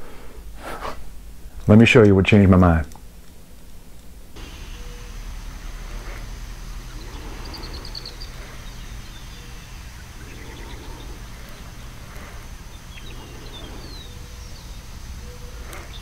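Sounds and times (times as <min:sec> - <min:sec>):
low steady rumble: 0:04.3 - 0:16.0
small birds chirping: 0:04.4 - 0:16.0.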